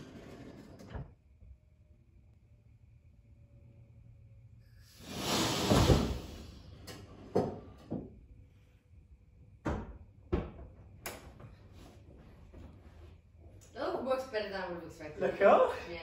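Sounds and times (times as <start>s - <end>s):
air jacks hissing: 4.8s - 6.8s.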